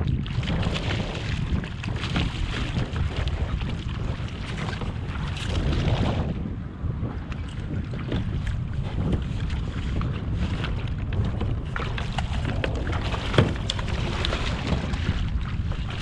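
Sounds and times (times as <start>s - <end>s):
wind buffeting microphone: 0.0s - 16.0s
fish splashing in water: 0.1s - 6.3s, 11.0s - 16.0s.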